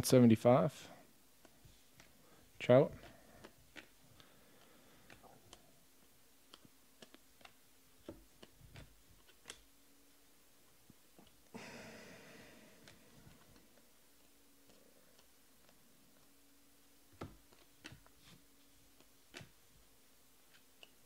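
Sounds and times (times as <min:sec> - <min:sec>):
cards sliding across each other: 0:01.4 - 0:05.6, 0:17.1 - 0:19.6
cards being flipped by hand: 0:01.4 - 0:09.8, 0:12.8 - 0:21.0.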